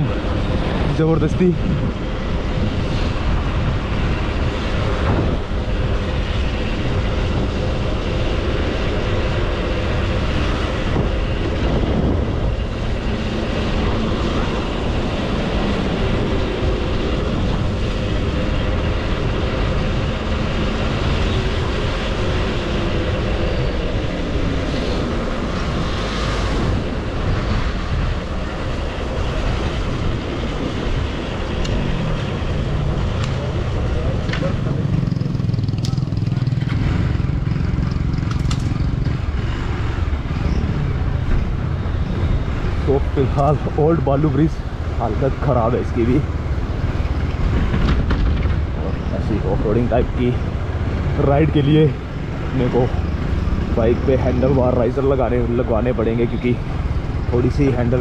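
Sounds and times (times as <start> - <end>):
road and wind noise: 0.0 - 58.0
motorcycle engine running: 33.4 - 39.8.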